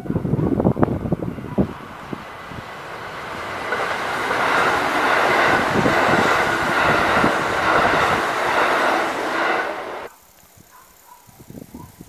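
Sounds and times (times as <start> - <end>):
electric train passing: 0.0 - 10.1.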